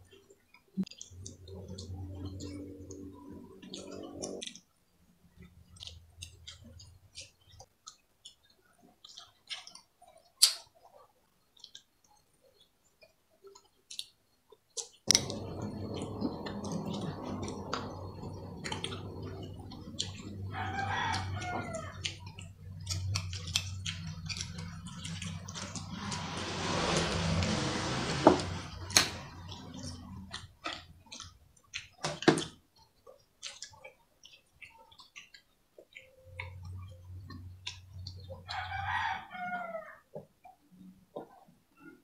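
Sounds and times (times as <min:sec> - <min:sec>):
low room noise: 0:00.0 - 0:42.0
chewing and lip smacks: 0:05.3 - 0:25.9, 0:29.4 - 0:38.5
rooster crowing: 0:17.3 - 0:22.2, 0:38.5 - 0:40.1.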